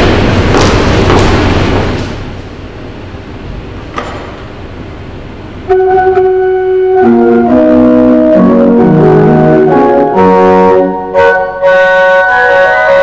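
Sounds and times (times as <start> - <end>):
church pipe organ chords: 5.5 - 13.0.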